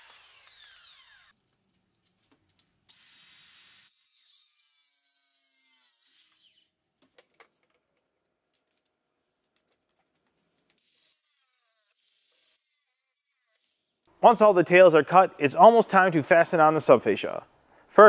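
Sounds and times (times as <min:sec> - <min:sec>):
saw motor whine: 0:00.0 - 0:01.3
circular saw cutting wood: 0:00.0 - 0:01.4, 0:02.9 - 0:06.7.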